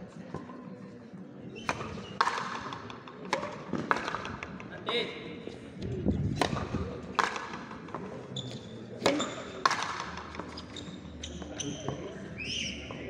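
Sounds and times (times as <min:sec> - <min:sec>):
ball smacking racket and wall: 0:01.6 - 0:04.5, 0:06.4 - 0:08.1, 0:09.0 - 0:10.6.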